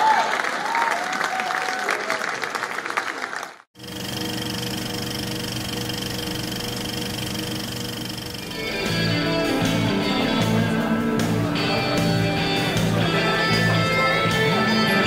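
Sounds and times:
audience applauding: 0:00.0 - 0:03.7
buzzing hum: 0:03.8 - 0:14.6.

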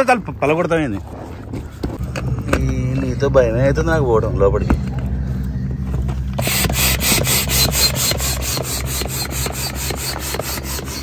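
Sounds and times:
air pump rhythmic rasping hiss: 0:06.4 - 0:11.0.

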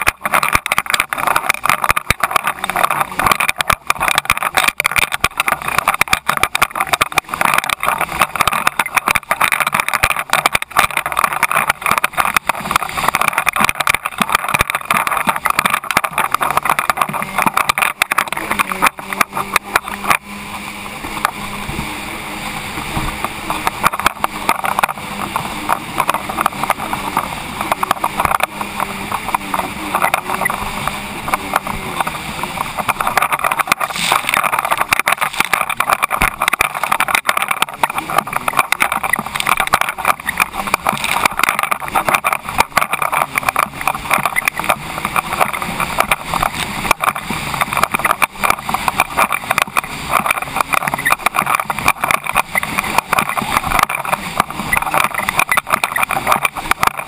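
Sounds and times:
jet ski engine drone: 0:00.0 - 0:57.0
water rushing against hull: 0:00.0 - 0:57.0.

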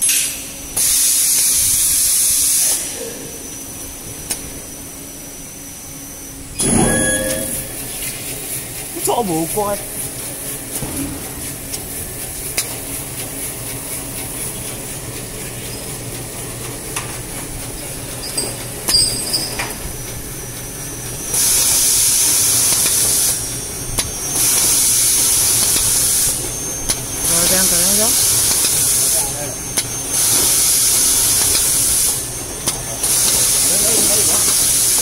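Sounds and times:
band saw hissing through paper: 0:33.0 - 0:35.0.

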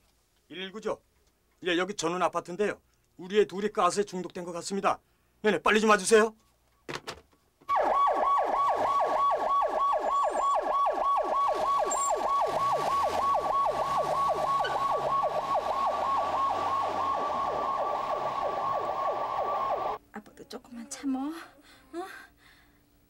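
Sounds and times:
ambulance siren yelping: 0:07.7 - 0:20.0.

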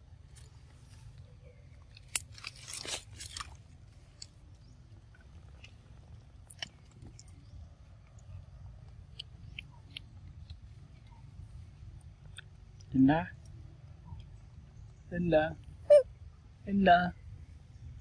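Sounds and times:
crunching bites: 0:01.8 - 0:04.4
small chewing clicks: 0:01.8 - 0:11.3, 0:12.0 - 0:14.4.

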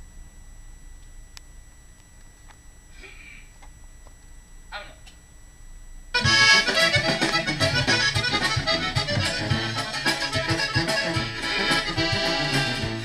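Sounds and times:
accordion-led corrido music: 0:06.2 - 0:13.0.

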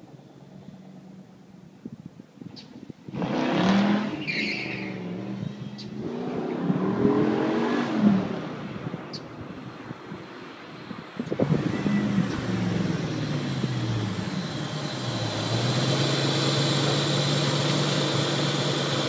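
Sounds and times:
car engine slowing and idling: 0:11.2 - 0:19.0.

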